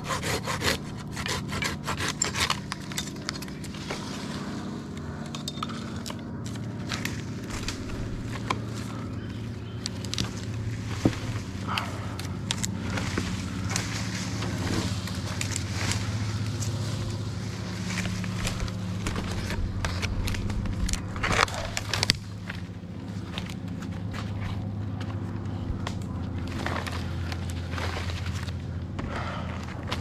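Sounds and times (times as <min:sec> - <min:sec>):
low engine hum: 0:00.0 - 0:30.0
crackles and snaps: 0:09.8 - 0:16.8, 0:18.0 - 0:22.7.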